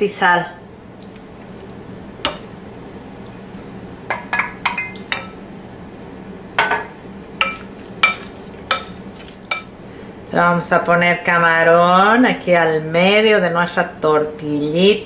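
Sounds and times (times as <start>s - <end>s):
wooden spoon knocking glass bowl: 7.4s - 9.7s.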